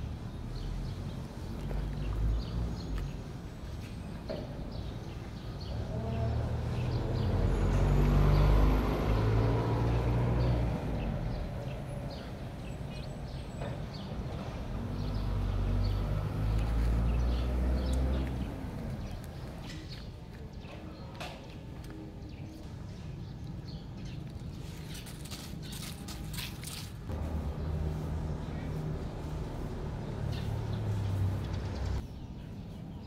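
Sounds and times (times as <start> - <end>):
vehicle engine passing by: 5.6 - 19.7, 27.0 - 32.0.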